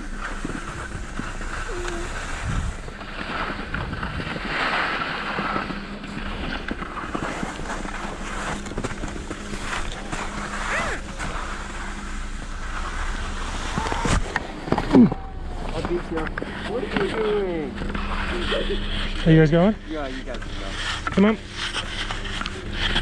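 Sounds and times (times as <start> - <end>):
wind buffeting microphone: 0.0 - 4.5
faint steady hum: 0.0 - 23.0
skis scraping on snow: 0.0 - 23.0.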